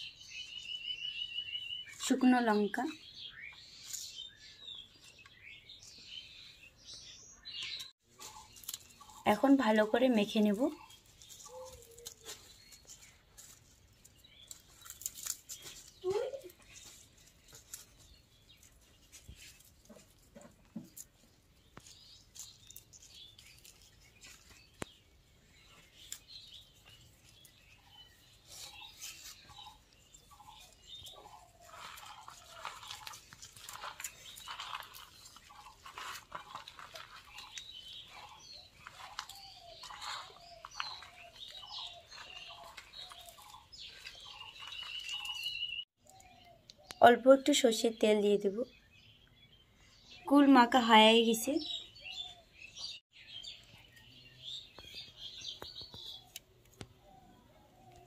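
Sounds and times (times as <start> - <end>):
birds chirping: 0.0 - 58.0
fruit and leaves being tossed: 8.1 - 25.1, 30.6 - 45.6.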